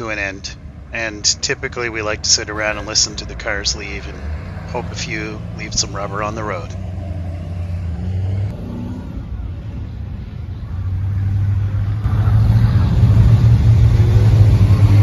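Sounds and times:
car engines driving away: 0:00.0 - 0:15.0
car passing: 0:00.0 - 0:15.0.

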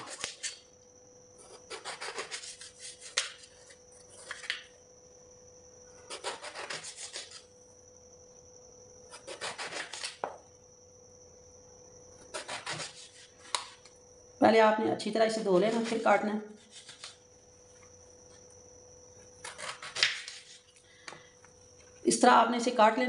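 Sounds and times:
knife sawing through vegetable: 0:01.6 - 0:03.2, 0:06.1 - 0:07.4, 0:12.3 - 0:13.3.

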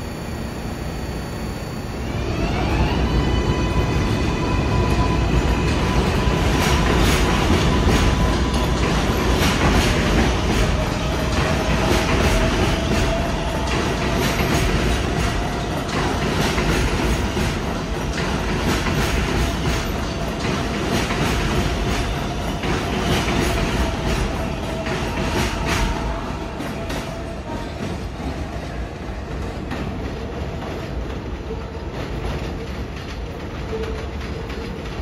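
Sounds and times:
steady whine: 0:00.0 - 0:02.8.

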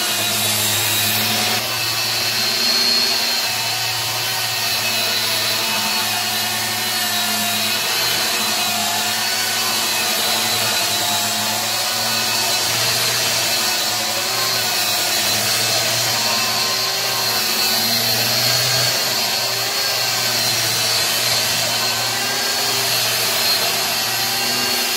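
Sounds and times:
angle grinder whine: 0:00.0 - 0:24.9
disc sanding wood: 0:00.0 - 0:24.9.

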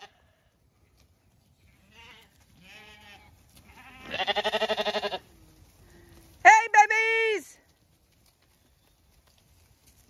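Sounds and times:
lambs bleating: 0:01.8 - 0:05.4.

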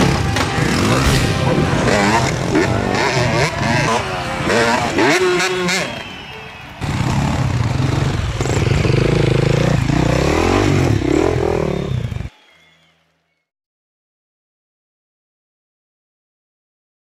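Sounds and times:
dirt bike engines revving: 0:00.0 - 0:12.4
voices: 0:00.0 - 0:12.6.

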